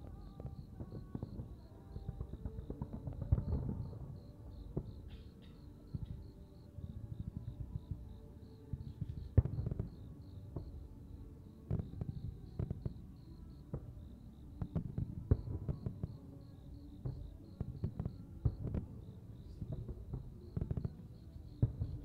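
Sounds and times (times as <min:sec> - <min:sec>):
crickets chirping: 0:00.0 - 0:22.0
fireworks bangs and crackles: 0:00.0 - 0:22.0.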